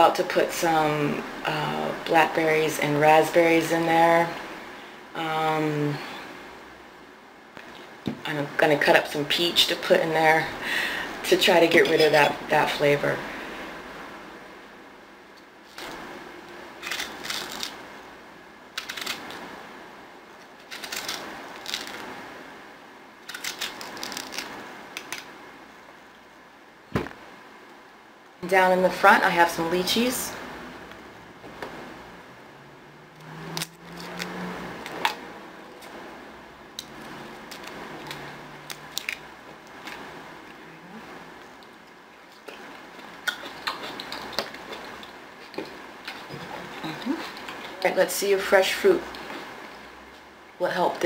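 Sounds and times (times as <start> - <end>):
fruit rinds cracking and peeling: 16.8 - 17.8, 18.8 - 19.4, 20.5 - 22.0, 23.2 - 25.3, 33.5 - 35.2, 42.3 - 47.8.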